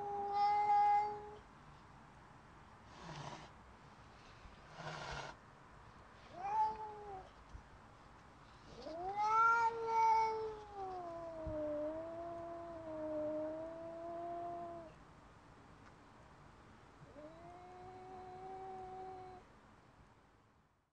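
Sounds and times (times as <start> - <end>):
cat yowling: 0.0 - 1.4, 6.4 - 7.3, 8.8 - 14.9
cat howling: 8.8 - 14.9.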